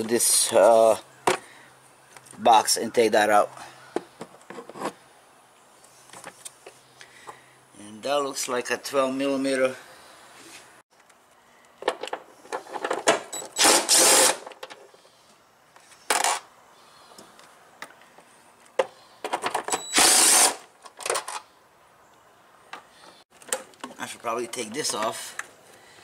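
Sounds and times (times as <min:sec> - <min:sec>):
impact driver bursts: 0:13.4 - 0:14.5, 0:19.8 - 0:20.6.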